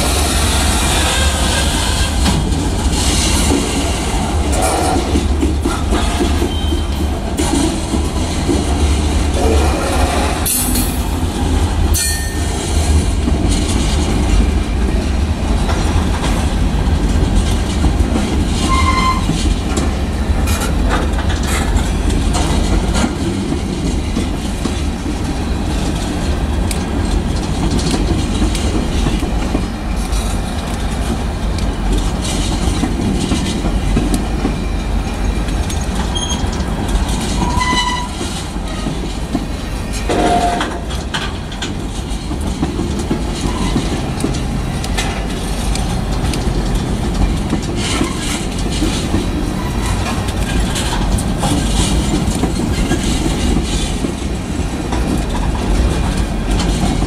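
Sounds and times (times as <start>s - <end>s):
freight train wheels rumbling: 0.0s - 57.0s
wheels clacking over rail joints: 0.0s - 57.0s
high wheel squeals: 18.6s - 19.3s, 36.1s - 36.5s.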